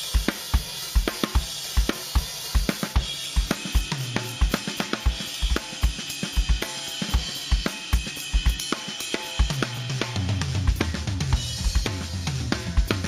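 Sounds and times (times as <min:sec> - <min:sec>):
cymbals and hi-hat: 0:00.0 - 0:13.0
bass drum beating: 0:09.9 - 0:13.0.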